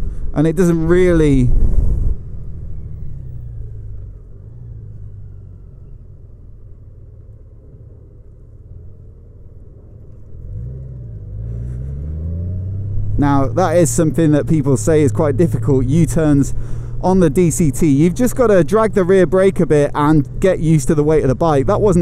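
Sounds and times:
motorcycle engine accelerating: 1.0s - 22.0s.

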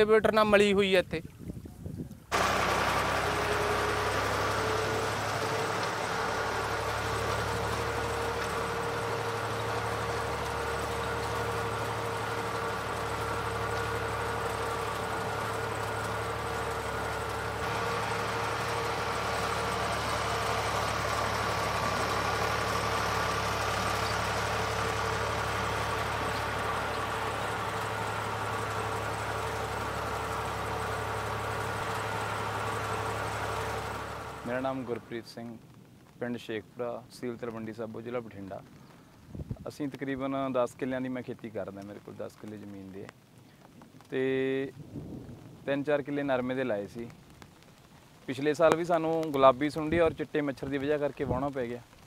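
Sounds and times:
diesel tractor engine running: 2.3s - 36.1s.

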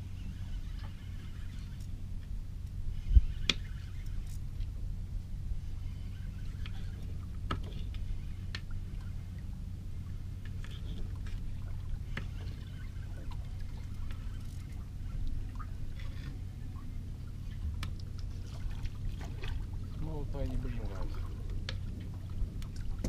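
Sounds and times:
steady low hum: 0.0s - 23.0s
water lapping against boat hull: 5.6s - 23.0s.

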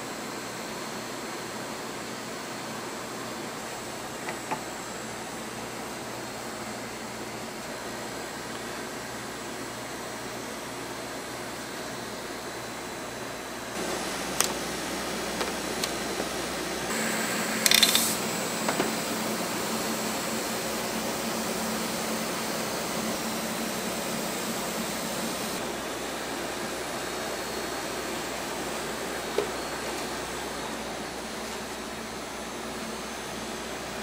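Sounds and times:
cotton candy machine whirring: 13.7s - 25.8s.

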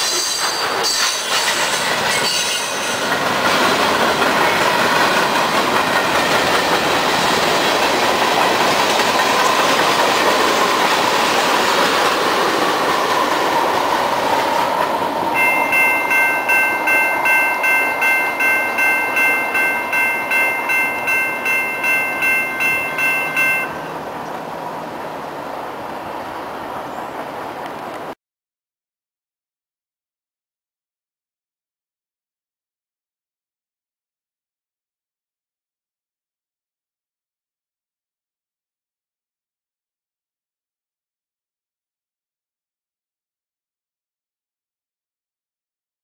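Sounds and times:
freight cars clattering on rails: 0.0s - 24.4s
crossing bell ringing: 15.4s - 24.0s.

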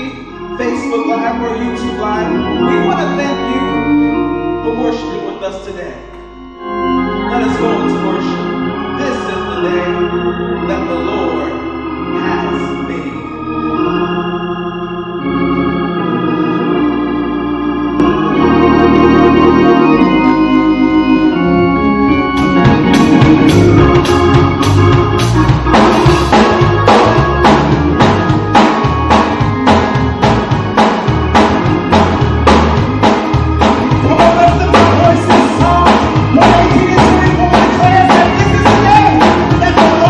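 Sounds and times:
organ playing held chords: 0.0s - 40.0s
drum kit steady beat: 22.4s - 40.0s.

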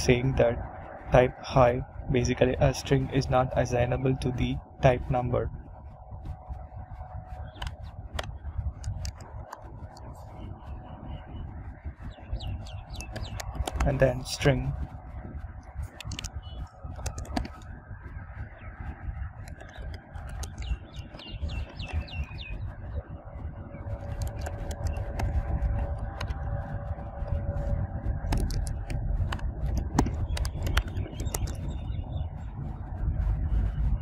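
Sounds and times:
low background rumble: 0.0s - 34.0s
computer keyboard keystrokes: 17.0s - 17.6s, 19.4s - 20.7s, 28.3s - 31.6s.

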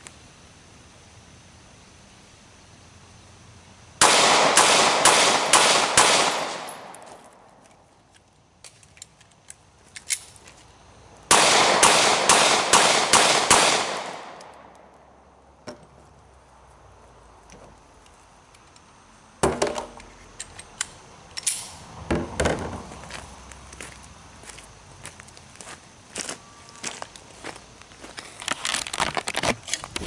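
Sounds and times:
pistol shots: 4.0s - 7.2s, 11.3s - 14.7s.

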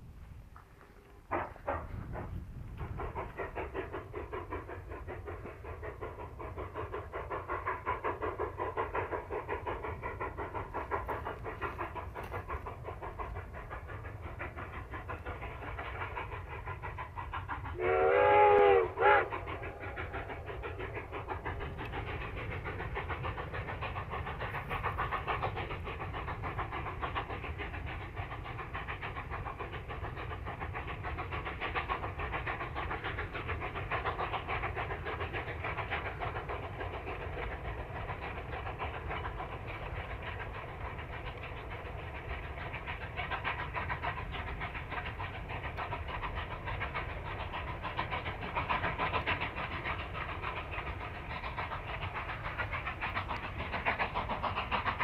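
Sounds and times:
steam locomotive chuffing: 0.0s - 55.0s
steam whistle blast: 17.8s - 19.3s.

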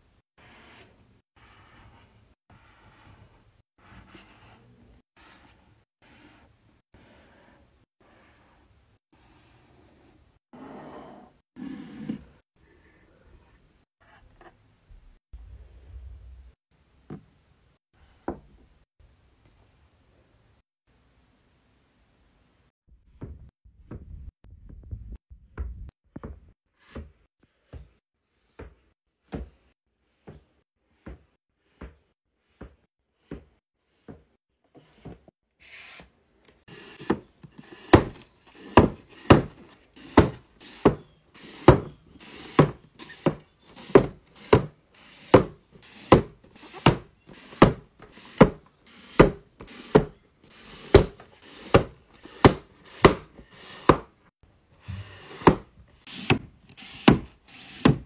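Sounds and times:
books knocking on shelf: 37.9s - 41.0s, 55.0s - 55.7s.

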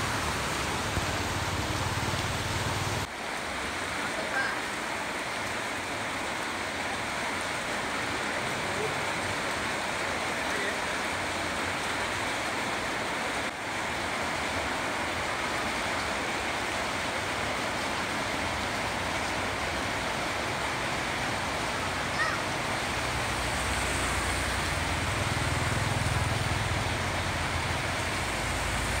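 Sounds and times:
steady watery hiss: 0.0s - 29.0s.

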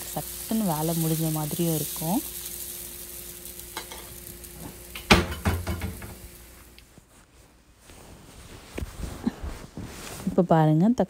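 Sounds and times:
food sizzling in a pan: 0.0s - 6.8s
utensil clattering against pan: 5.0s - 6.2s.

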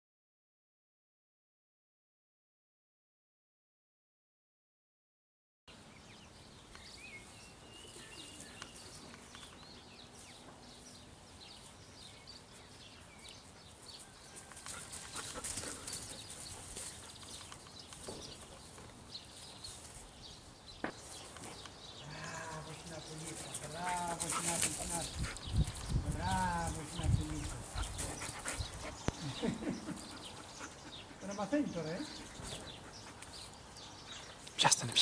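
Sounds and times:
dogs scuffling: 22.9s - 28.6s.

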